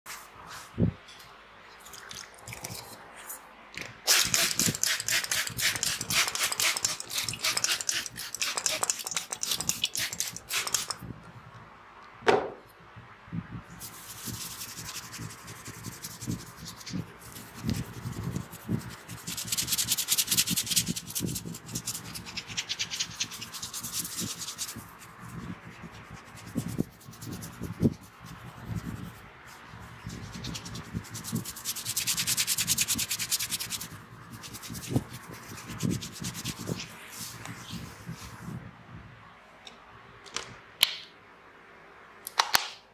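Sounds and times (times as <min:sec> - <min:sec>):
fingers rubbing hair: 0:04.1 - 0:11.0, 0:13.8 - 0:38.5.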